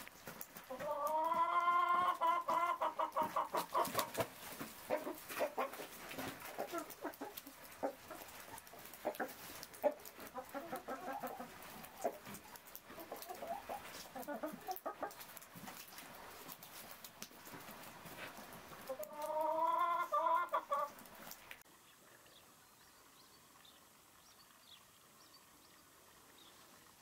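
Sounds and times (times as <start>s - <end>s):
hen clucking: 0.5s - 15.4s, 18.8s - 21.0s.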